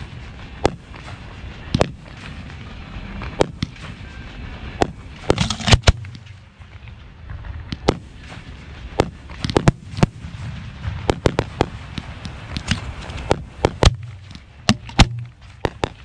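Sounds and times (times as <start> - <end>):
firework shells bursting: 4.8 - 6.4, 11.0 - 16.0.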